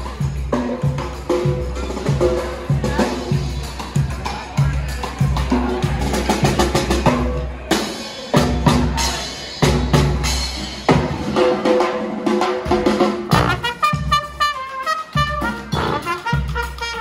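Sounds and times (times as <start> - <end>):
marching brass band playing: 12.6 - 17.0
bass drum beat: 12.7 - 17.0.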